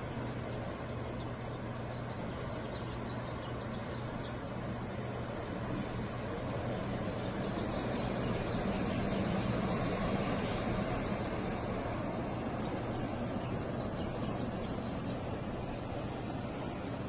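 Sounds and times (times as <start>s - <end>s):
low steady hum: 0.0s - 17.0s
ocean surf: 4.4s - 17.0s.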